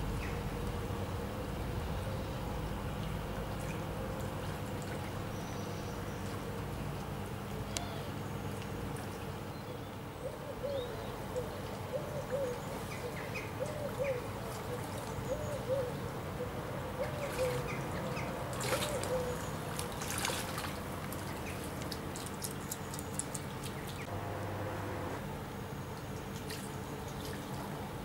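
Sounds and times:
river water running: 0.0s - 28.0s
bird cooing: 10.2s - 20.1s
otter splashing: 17.2s - 24.1s.

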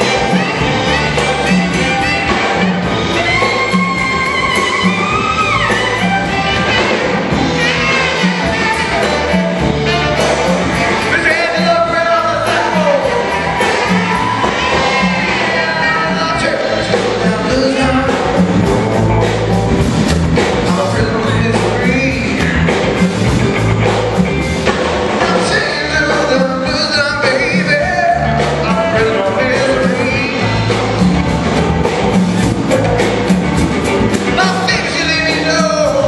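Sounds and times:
electric guitar: 0.0s - 36.0s
steady drum beat: 0.0s - 36.0s
walking bass line: 0.0s - 36.0s
man singing: 8.7s - 19.0s, 20.4s - 23.2s, 25.1s - 31.0s, 34.3s - 36.0s.

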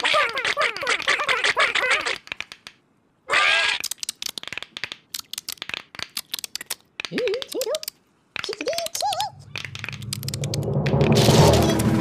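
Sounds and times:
squeaky cartoon voices chattering: 0.0s - 2.2s
sharp clicks and patters: 0.0s - 2.9s, 3.8s - 12.0s.

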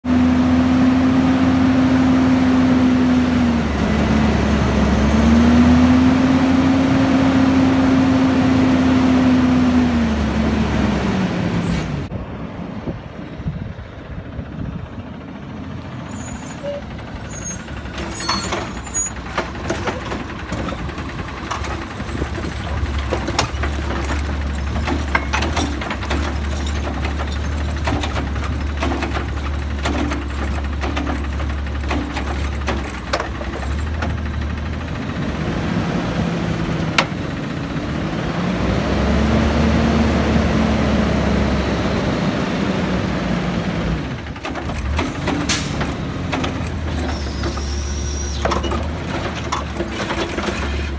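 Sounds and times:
garbage truck diesel engine revving: 0.1s - 12.1s, 14.9s - 50.9s
clanks and knocks of cart: 16.1s - 35.5s, 36.6s - 37.9s, 44.0s - 50.9s.

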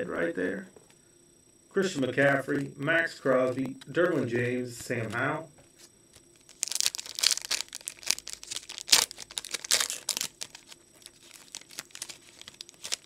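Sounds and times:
foil wrapper crinkling: 6.2s - 13.0s.

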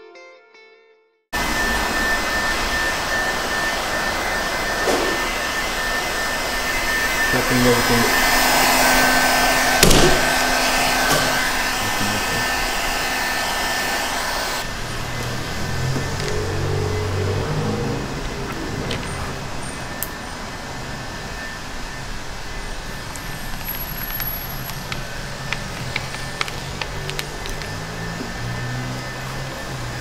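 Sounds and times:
heat gun blowing hot air: 1.4s - 14.7s.

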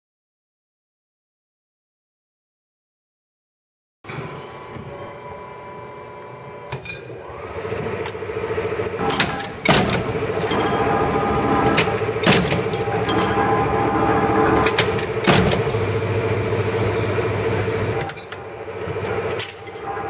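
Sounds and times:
stamping press motor hum: 4.1s - 20.0s.

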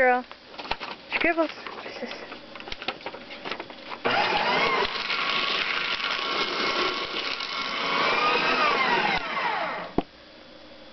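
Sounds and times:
paper shredder motor whine: 4.0s - 10.1s.

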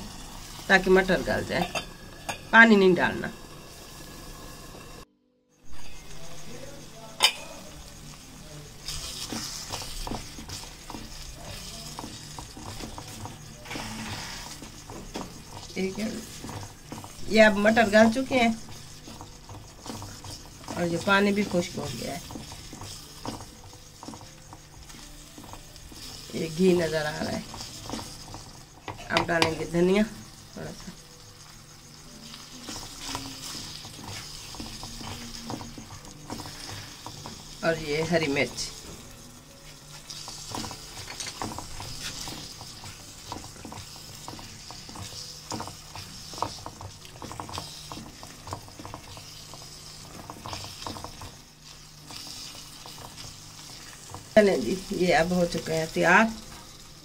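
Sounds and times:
food sizzling in oil: 0.0s - 57.0s
metal pot lid clanking: 1.5s - 2.6s, 7.2s - 7.6s
spoon scraping metal pan: 5.8s - 8.2s, 8.8s - 31.0s
wooden spatula scraping pan: 7.3s - 31.0s, 31.9s - 56.8s.

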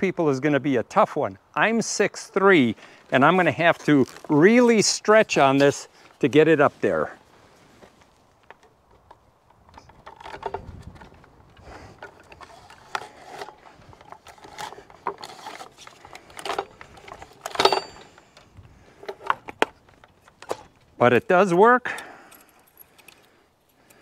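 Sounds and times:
chainsaw scraping against metal: 9.5s - 19.5s
sharp metal clank: 17.5s - 18.1s.

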